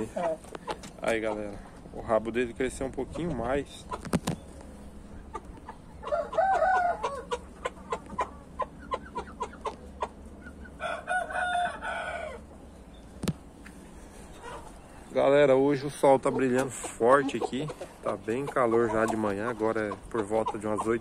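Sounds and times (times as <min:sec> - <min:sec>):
rapid clucks: 0:00.0 - 0:01.8, 0:02.9 - 0:06.1, 0:06.8 - 0:10.8, 0:15.7 - 0:21.0
rooster crowing: 0:06.0 - 0:07.3, 0:10.8 - 0:12.5.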